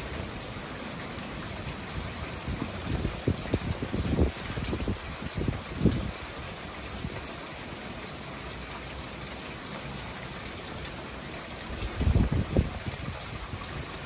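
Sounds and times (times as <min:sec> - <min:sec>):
steady rain falling: 0:00.0 - 0:14.0
wind rumbling on microphone: 0:02.3 - 0:06.3, 0:11.8 - 0:14.0.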